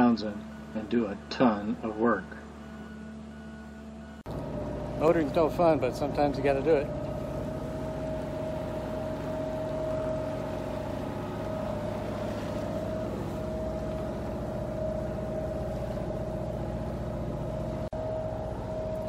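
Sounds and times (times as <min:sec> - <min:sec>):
boat engine droning: 0:00.0 - 0:19.0
engine whine: 0:00.0 - 0:19.0.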